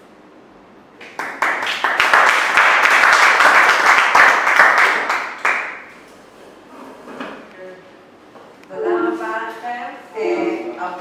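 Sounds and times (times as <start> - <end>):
audience applauding: 1.0 - 5.9.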